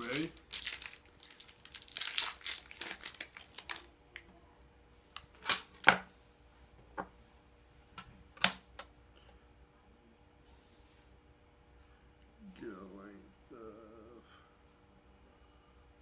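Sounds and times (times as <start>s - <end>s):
wrapper crinkling: 0.0s - 3.9s.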